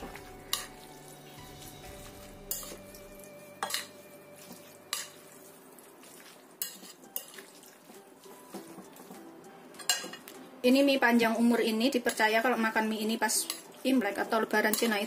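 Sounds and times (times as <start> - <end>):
spoon clinking against bowl: 2.5 - 3.0, 3.6 - 4.0, 9.8 - 10.3.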